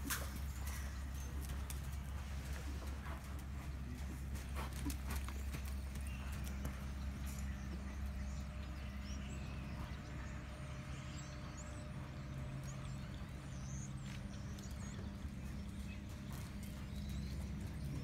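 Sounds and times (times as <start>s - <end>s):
horse hoofbeats on sand: 0.0s - 18.0s
steady low hum: 0.0s - 18.0s.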